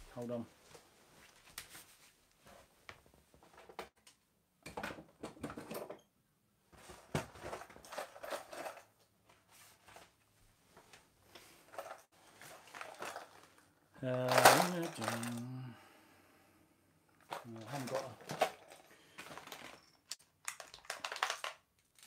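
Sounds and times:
rummaging through cupboard: 6.8s - 10.1s, 11.4s - 15.4s, 17.2s - 20.0s.

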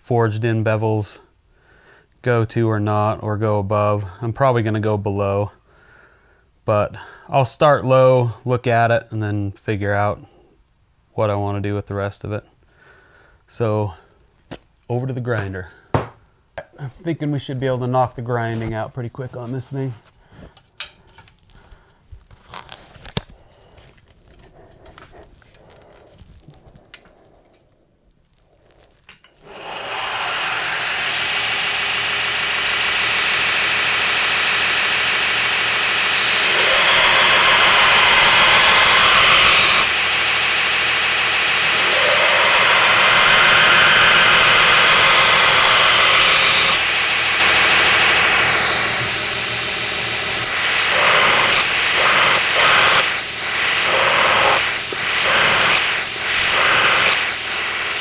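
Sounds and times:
belt grinder running: 29.4s - 58.0s.

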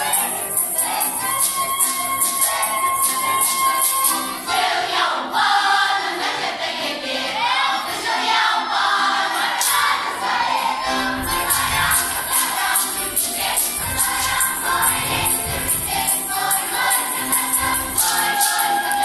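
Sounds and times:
percussion strokes: 0.0s - 4.6s, 11.0s - 19.0s
instrumental accompaniment: 0.0s - 5.2s, 8.8s - 19.0s
choir singing folk song: 0.0s - 19.0s.

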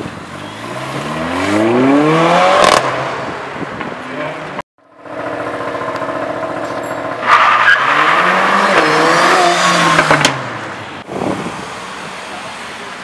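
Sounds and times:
sports car engine revving: 0.5s - 3.4s, 4.1s - 10.7s.

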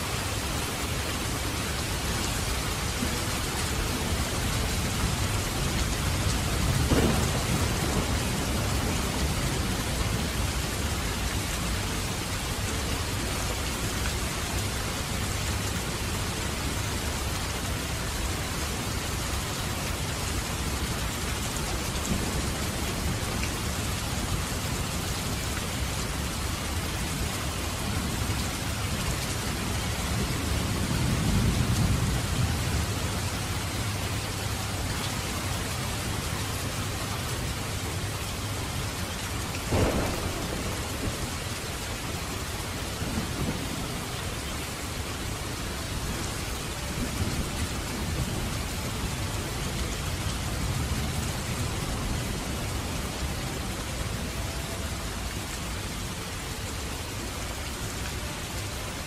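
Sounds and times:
steady rain: 0.0s - 59.0s
low thunder rumble: 2.4s - 11.8s, 39.6s - 44.4s.

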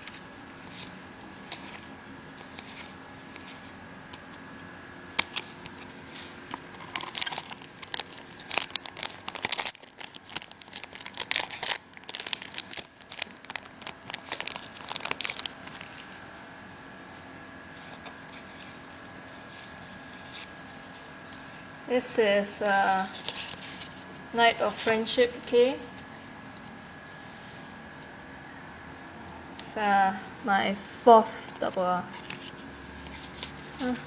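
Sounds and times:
foil wrapper tearing and crinkling: 6.8s - 16.2s.

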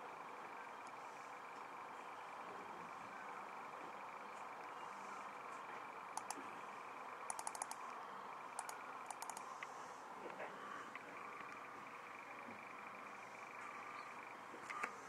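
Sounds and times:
faint steady hum: 0.0s - 15.0s
computer mouse clicking: 6.2s - 6.4s, 7.3s - 7.9s, 8.6s - 9.7s.

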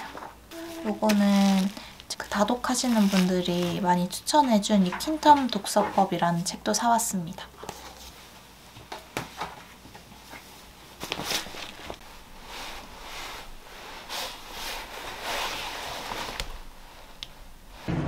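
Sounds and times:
fabric rustling: 0.0s - 6.1s, 10.2s - 17.9s.

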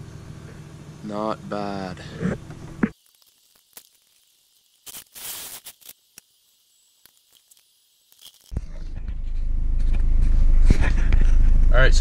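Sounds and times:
car engine low rumble: 0.0s - 2.9s, 8.5s - 12.0s.

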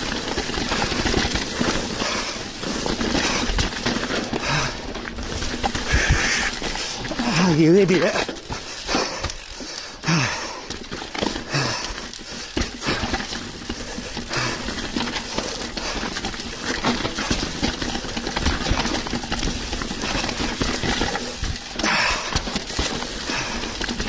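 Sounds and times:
bike chain and frame clattering: 0.0s - 24.0s
tyres rolling over stony ground: 0.0s - 24.0s.

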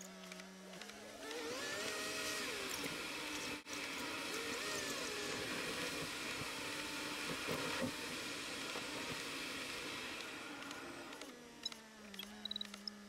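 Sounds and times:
car engine and tyre noise: 0.0s - 13.0s.

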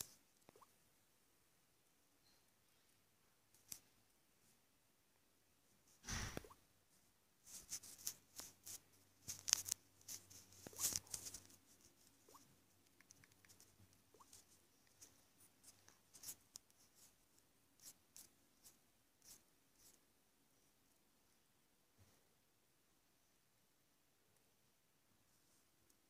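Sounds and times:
fingers tapping touchscreen: 0.0s - 0.7s, 12.2s - 15.1s.

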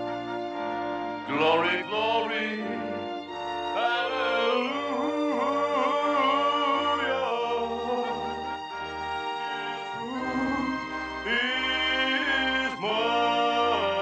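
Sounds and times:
man singing: 1.3s - 3.0s, 3.8s - 8.4s, 9.9s - 14.0s.

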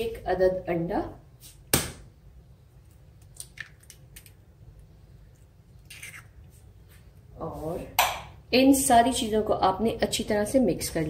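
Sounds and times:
egg squishing into mix: 2.7s - 6.9s.

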